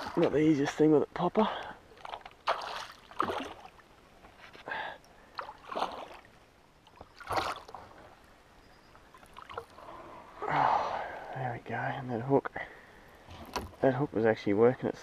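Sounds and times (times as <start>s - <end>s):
fish splashing at the surface: 2.1s - 3.8s.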